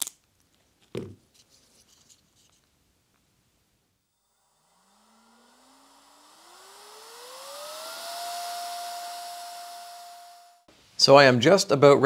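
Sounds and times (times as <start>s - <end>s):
blower fan whine: 4.1s - 10.7s.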